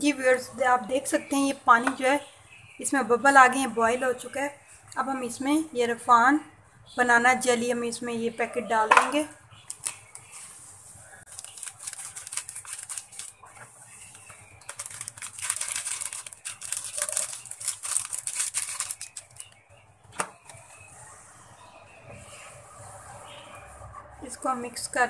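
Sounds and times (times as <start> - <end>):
plastic sachet crinkling: 11.3 - 13.5, 14.1 - 19.6.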